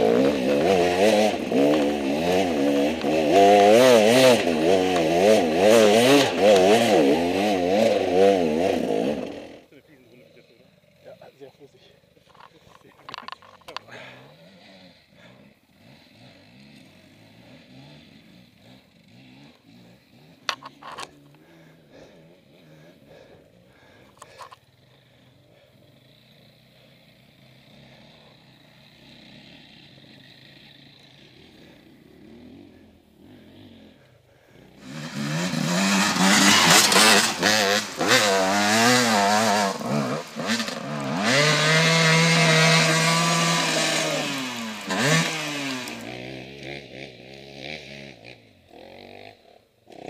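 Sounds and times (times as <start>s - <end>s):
dirt bike engine revving: 0.0s - 50.0s.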